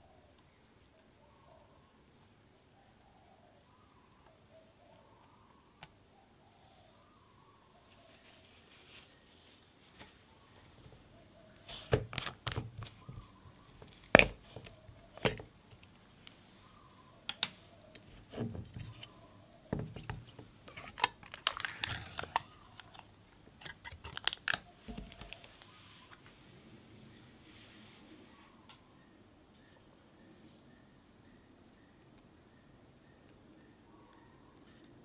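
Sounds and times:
foil seal crinkling: 0:11.6 - 0:15.5, 0:19.9 - 0:25.7.

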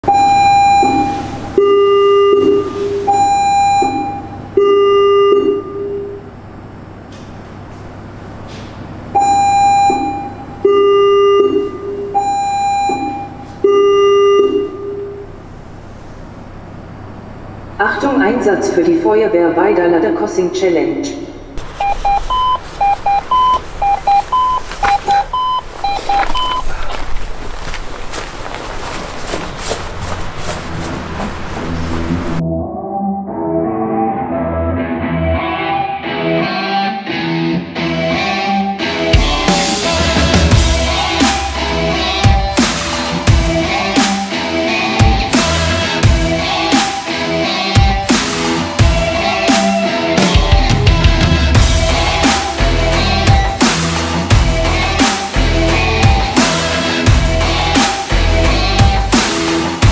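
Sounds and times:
electronic alarm tones: 0:00.0 - 0:06.2, 0:09.2 - 0:15.3, 0:21.8 - 0:26.7
knocks and rustles: 0:24.6 - 0:32.4.

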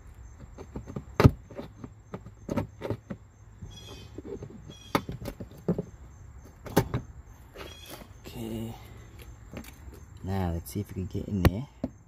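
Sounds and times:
short squeak: 0:03.6 - 0:05.1, 0:07.5 - 0:08.2.

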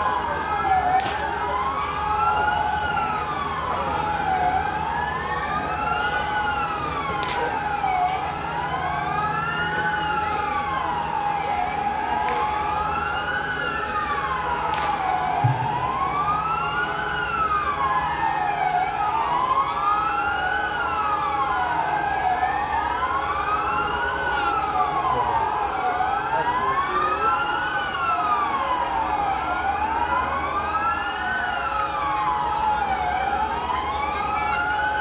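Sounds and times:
air-raid sirens wailing: 0:00.0 - 0:35.0
sharp cracks: 0:14.6 - 0:15.2.

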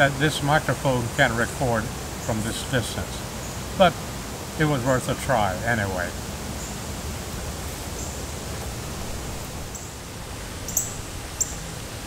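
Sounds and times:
steady hiss: 0:00.0 - 0:12.0
very high chirps: 0:10.7 - 0:11.7.

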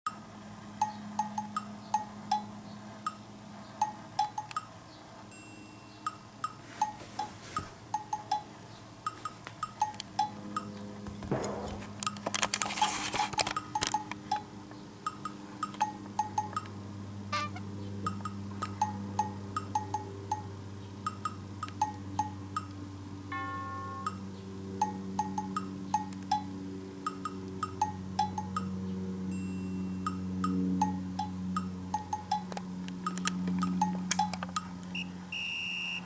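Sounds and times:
plinking chime-like percussion music: 0:00.8 - 0:03.2, 0:05.3 - 0:07.3, 0:07.9 - 0:08.5, 0:15.1 - 0:16.7, 0:18.1 - 0:20.5, 0:21.1 - 0:22.7, 0:23.3 - 0:24.2, 0:24.8 - 0:26.5, 0:27.1 - 0:28.7, 0:29.3 - 0:32.5
rustling noise: 0:06.6 - 0:07.9, 0:11.2 - 0:13.6.

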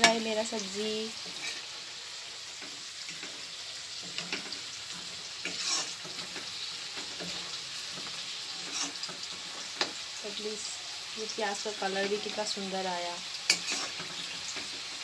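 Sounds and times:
food sizzling in oil: 0:00.0 - 0:15.0
metal spoon scraping pan: 0:01.2 - 0:01.7, 0:02.4 - 0:10.0, 0:13.4 - 0:15.0.

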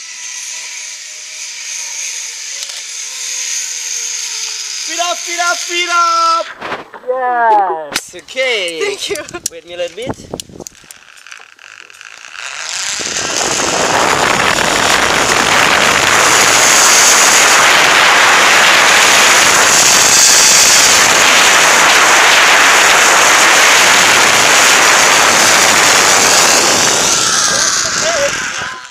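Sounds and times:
zip-line pulleys whirring on cable: 0:00.0 - 0:06.6, 0:10.6 - 0:28.9
wind rushing over microphone: 0:06.2 - 0:07.2, 0:09.1 - 0:10.8, 0:12.6 - 0:28.9.

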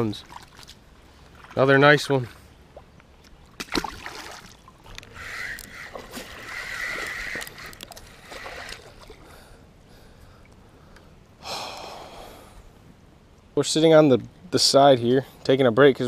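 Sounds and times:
water splashing: 0:00.0 - 0:09.4.

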